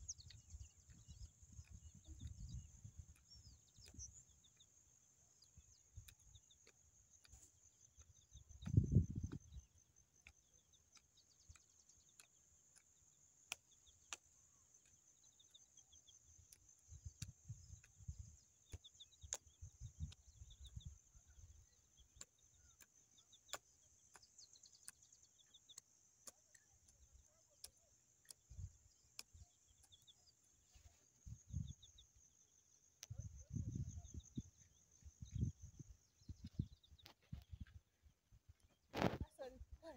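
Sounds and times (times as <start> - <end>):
insect chirring: 0.0 - 37.9
small chirps: 0.0 - 39.9
faint clicks: 5.5 - 15.6.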